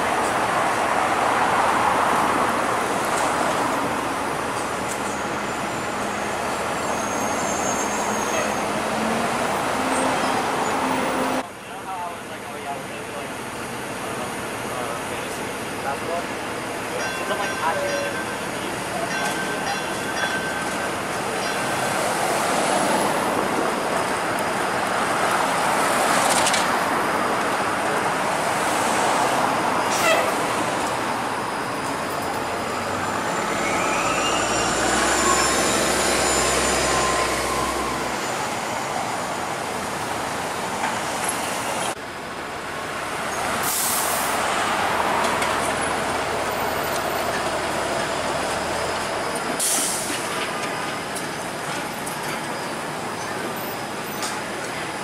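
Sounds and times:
street traffic: 0:00.0 - 0:55.0
streetcar rolling past: 0:00.0 - 0:55.0.

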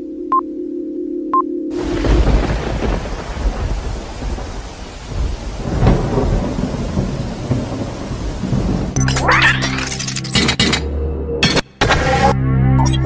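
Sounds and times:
thunder rolling: 0:01.7 - 0:09.0
rain hiss: 0:01.8 - 0:09.0.

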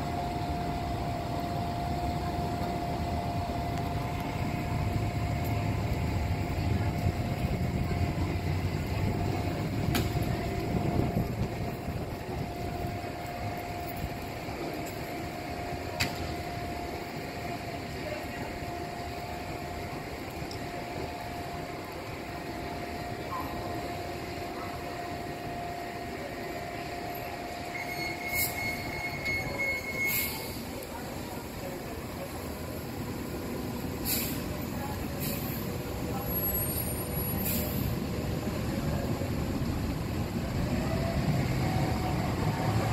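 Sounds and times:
steady hum: 0:00.0 - 0:27.8
train low rumble: 0:00.0 - 0:42.9.

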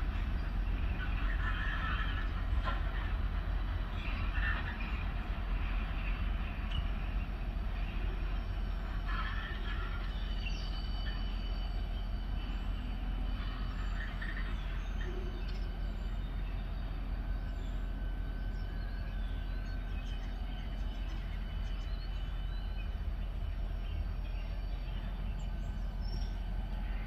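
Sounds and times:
freight train rumbling past: 0:00.0 - 0:27.0.

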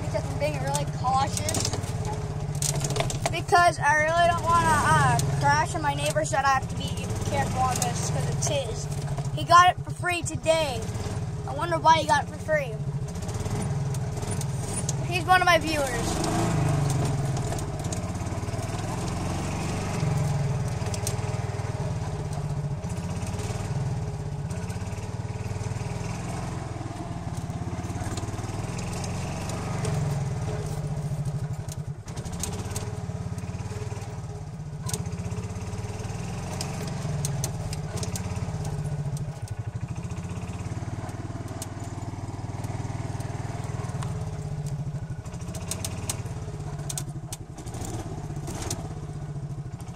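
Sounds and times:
golf cart engine running: 0:00.0 - 0:49.9
clicks and rattles: 0:00.1 - 0:03.4, 0:15.6 - 0:19.2, 0:34.8 - 0:48.9.

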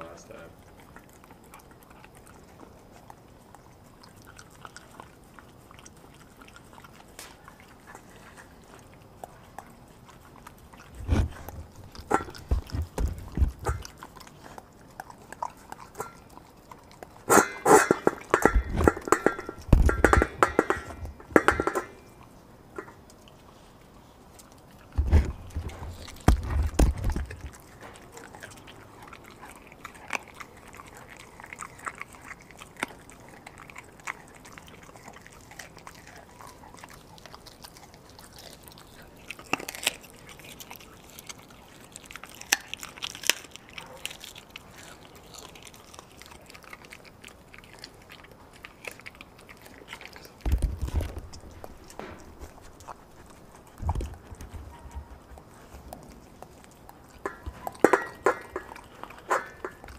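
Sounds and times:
dog chewing meat and bone: 0:00.0 - 0:59.9
heavy thumps: 0:11.0 - 0:13.8.

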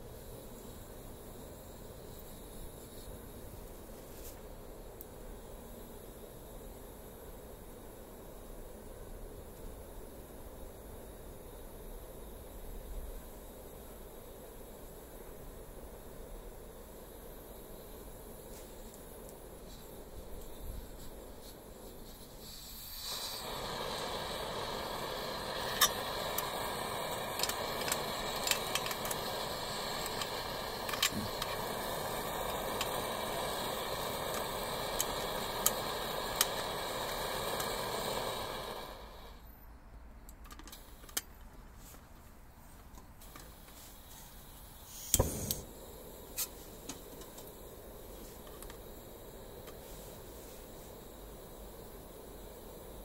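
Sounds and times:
stove burner hissing: 0:00.0 - 0:53.0.

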